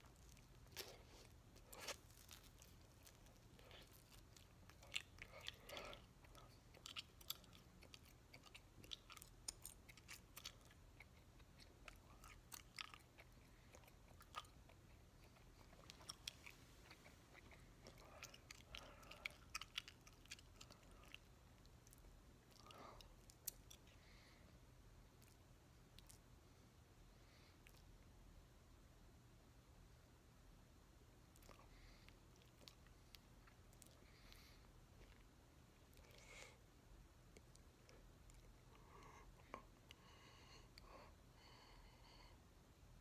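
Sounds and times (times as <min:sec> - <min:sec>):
gum chewing smacks and clicks: 0:00.0 - 0:24.0, 0:37.3 - 0:40.0.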